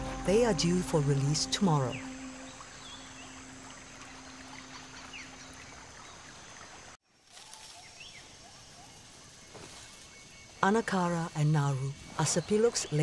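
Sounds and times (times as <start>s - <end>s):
stream trickling: 0.0s - 7.0s.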